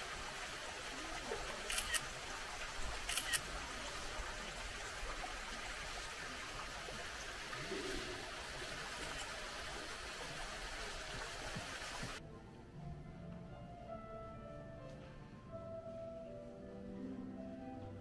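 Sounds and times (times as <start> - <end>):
water trickling: 0.0 - 12.2.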